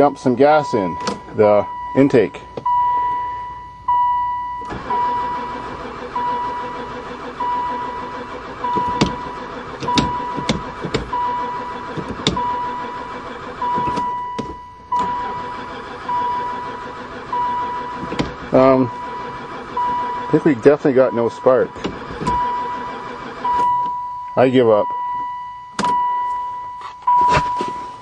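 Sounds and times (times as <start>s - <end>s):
warning chime beeping: 0.0s - 5.6s, 12.4s - 21.8s
starter motor cranking engine: 4.6s - 24.0s.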